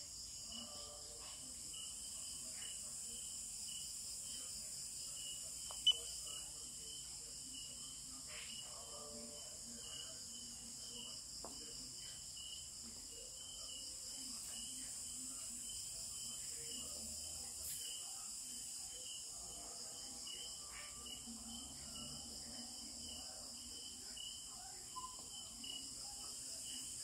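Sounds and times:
insects chirring: 0:00.1 - 0:08.7.

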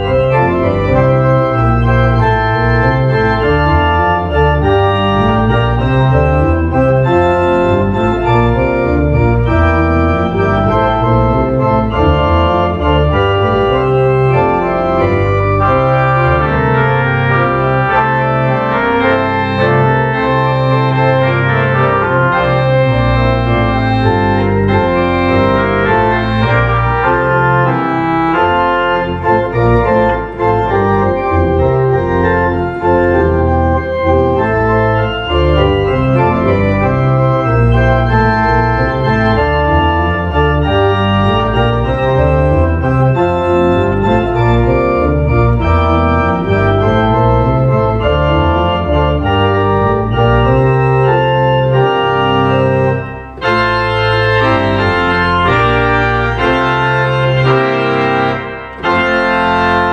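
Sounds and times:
church organ playing chords: 0:00.0 - 0:59.9.

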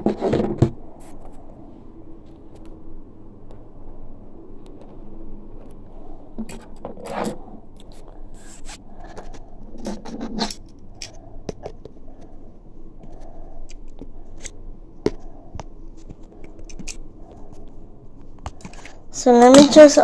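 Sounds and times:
handling rustling and scraping: 0:00.0 - 0:01.5, 0:05.6 - 0:12.4.

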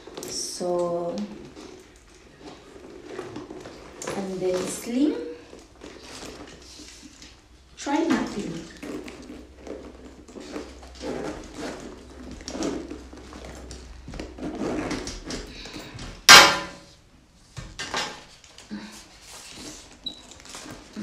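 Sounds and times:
leather bag rustling: 0:00.0 - 0:16.3, 0:18.4 - 0:21.0
sharp metallic clack: 0:16.3 - 0:16.9.

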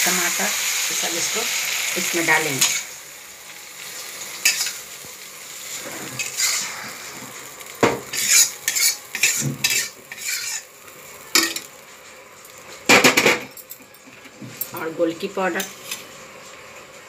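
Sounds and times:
light sizzle: 0:00.0 - 0:17.0
ladle scraping a metal pan: 0:08.1 - 0:10.7.

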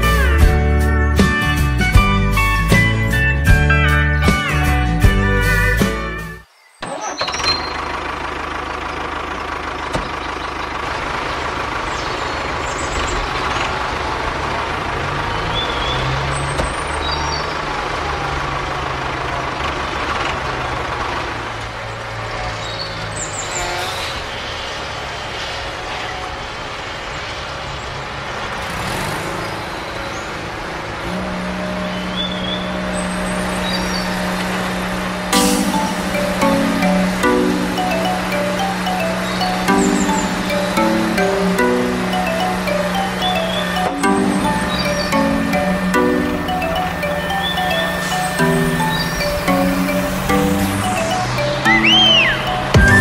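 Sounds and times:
vehicle engine running: 0:07.0 - 0:22.6, 0:28.4 - 0:53.0
faint high chirps: 0:35.4 - 0:53.0.

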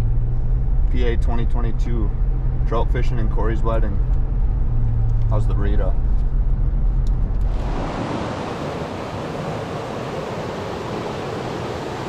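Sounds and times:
car cabin road rumble: 0:00.0 - 0:09.2
stream rushing over rocks: 0:07.4 - 0:12.0.

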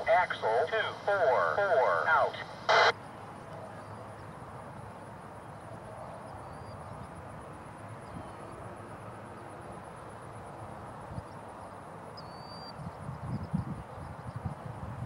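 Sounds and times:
low background rumble: 0:00.0 - 0:02.9.

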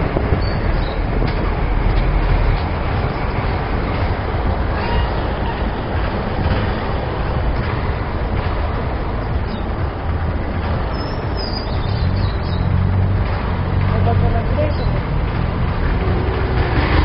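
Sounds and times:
motorcycle engine and road rumble: 0:00.0 - 0:17.0
high-pitched squeal: 0:02.9 - 0:07.5.

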